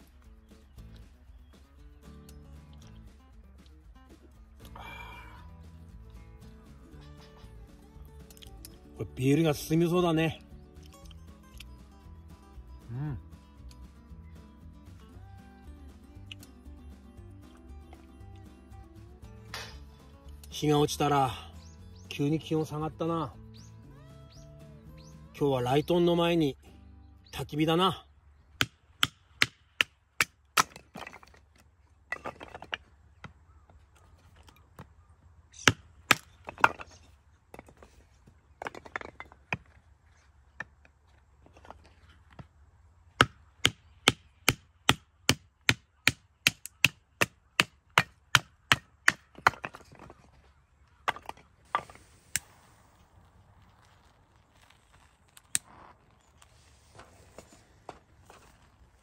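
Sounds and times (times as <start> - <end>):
firewood being chopped: 28.6 - 33.4, 35.6 - 37.9, 43.1 - 50.3, 51.0 - 52.5.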